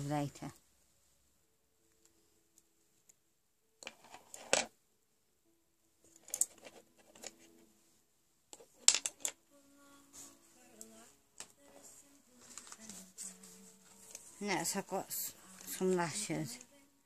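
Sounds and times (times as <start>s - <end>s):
handling small items and packaging: 6.0s - 7.8s, 10.0s - 16.8s.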